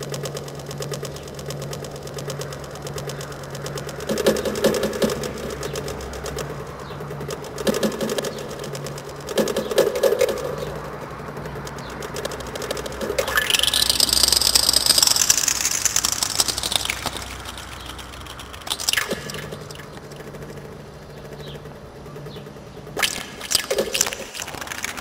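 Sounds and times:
high noisy sweep: 0:00.0 - 0:22.0, 0:22.8 - 0:25.0
experimental electronic music: 0:00.0 - 0:25.0.

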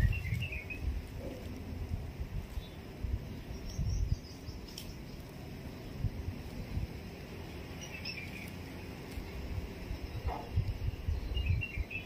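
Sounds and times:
bird chirps: 0:00.0 - 0:00.9, 0:02.5 - 0:05.2, 0:07.7 - 0:08.6, 0:09.9 - 0:12.0
low rumbling bumps: 0:00.0 - 0:07.8, 0:08.4 - 0:12.0.

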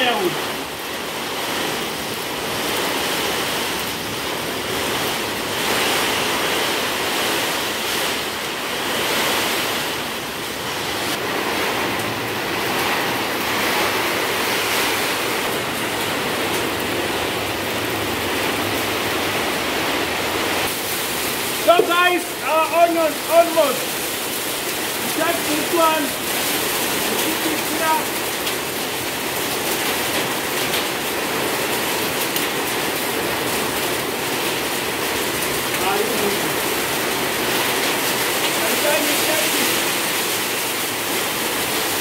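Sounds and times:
heavy rain falling: 0:00.0 - 0:42.0.

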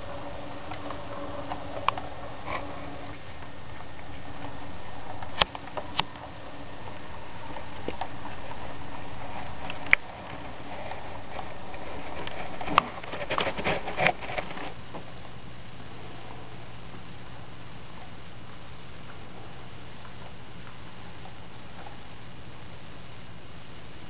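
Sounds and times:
model train wheels clicking: 0:00.0 - 0:15.4
steady rolling noise: 0:00.0 - 0:24.0.

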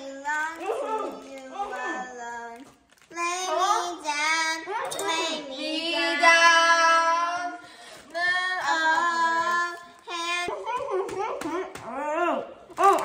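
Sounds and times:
child singing: 0:03.2 - 0:10.6.

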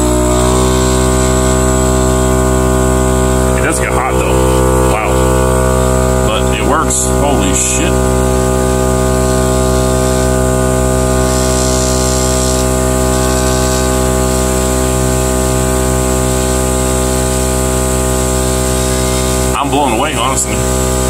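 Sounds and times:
air compressor running: 0:00.0 - 0:21.0.

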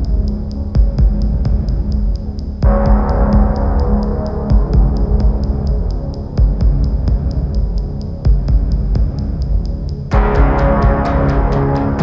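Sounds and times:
fast steady tick: 0:00.0 - 0:10.1
deep bass pulse: 0:00.0 - 0:12.0.

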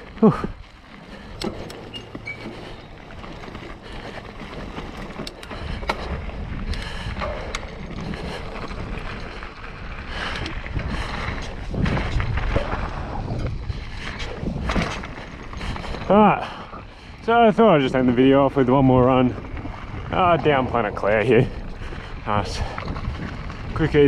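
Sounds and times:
bike clicks and rattles: 0:00.0 - 0:24.0
bike tyre rumble on dirt: 0:00.0 - 0:24.0
wind on microphone: 0:05.1 - 0:16.1, 0:18.8 - 0:24.0.

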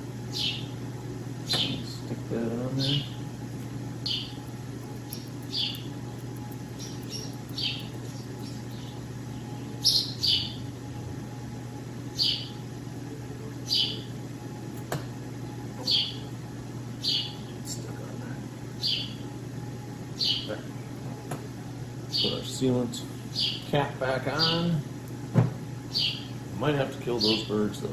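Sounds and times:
steady low hum: 0:00.0 - 0:27.9
small birds chirping: 0:00.3 - 0:00.8, 0:01.4 - 0:02.1, 0:02.7 - 0:10.7, 0:12.1 - 0:12.7, 0:13.6 - 0:14.1, 0:15.8 - 0:16.3, 0:17.0 - 0:17.9, 0:18.8 - 0:19.3, 0:20.2 - 0:20.6, 0:22.0 - 0:22.7, 0:23.3 - 0:23.7, 0:24.3 - 0:24.8, 0:25.9 - 0:26.4, 0:27.0 - 0:27.7.

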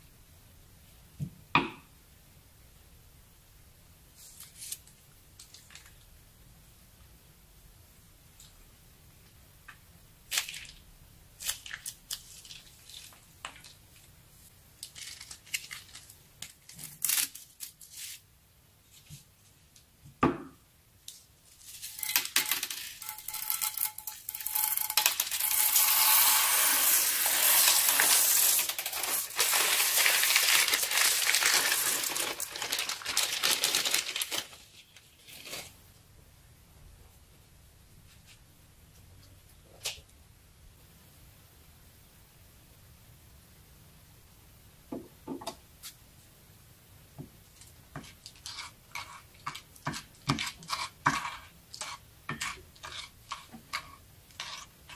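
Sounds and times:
beads pouring into glass dish: 0:21.8 - 0:34.0.

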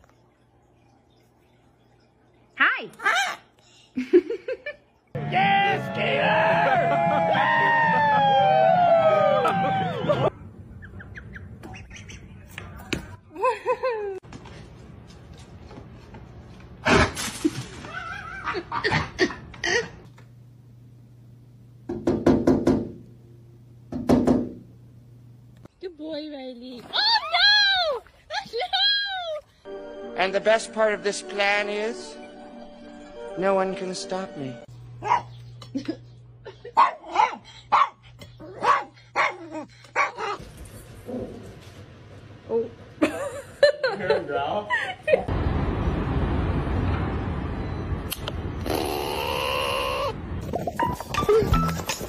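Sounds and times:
small dog barking: 0:35.0 - 0:35.4, 0:36.8 - 0:40.4.

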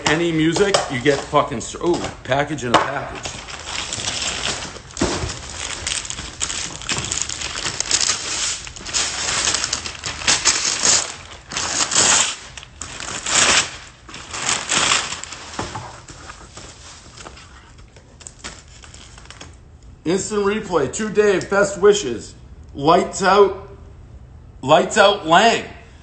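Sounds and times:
wrapping paper tearing and crumpling: 0:00.0 - 0:02.3, 0:03.1 - 0:19.6.

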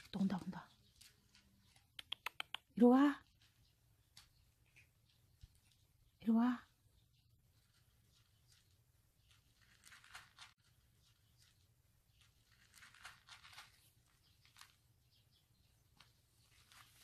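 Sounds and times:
faint rustles and crunches: 0:00.0 - 0:01.9, 0:07.4 - 0:17.0.

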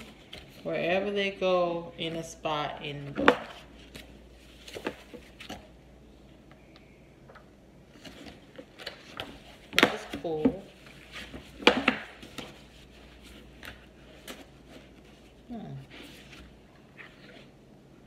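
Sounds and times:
books slapping on table: 0:08.8 - 0:12.6.

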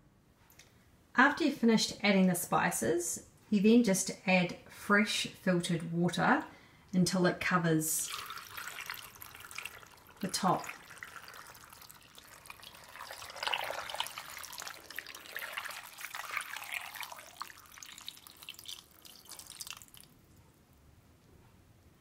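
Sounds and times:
water pouring into pot: 0:08.0 - 0:20.2.

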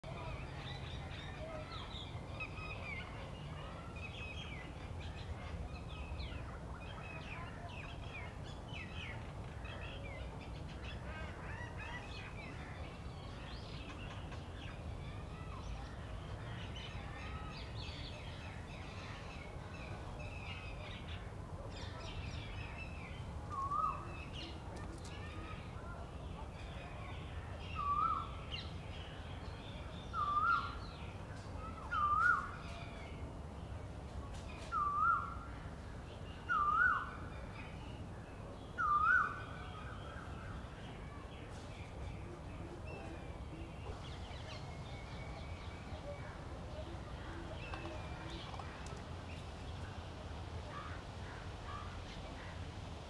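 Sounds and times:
small birds chirping: 0:00.0 - 0:35.5, 0:36.1 - 0:52.7.

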